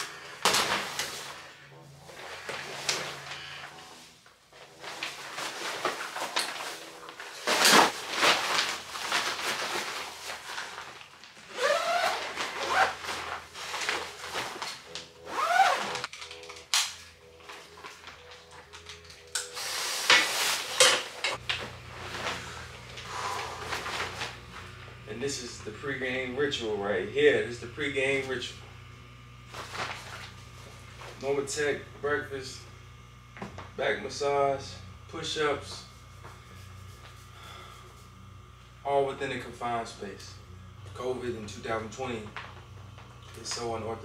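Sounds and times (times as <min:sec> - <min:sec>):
nylon boots rustling and scraping: 0:04.7 - 0:16.1
zipper being zipped: 0:11.5 - 0:14.6, 0:15.2 - 0:16.1
low steady hum: 0:20.3 - 0:44.0.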